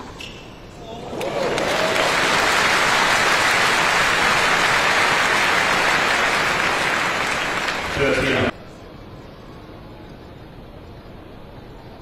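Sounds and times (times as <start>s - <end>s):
crowd applauding: 1.1s - 8.5s.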